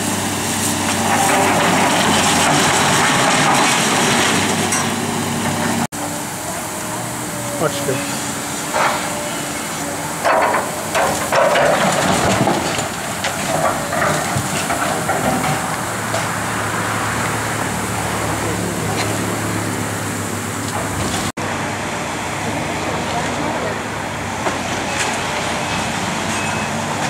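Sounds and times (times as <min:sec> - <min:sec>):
debris crashing and scraping: 0:00.0 - 0:05.9, 0:08.6 - 0:17.5
excavator diesel engine running: 0:00.0 - 0:27.0.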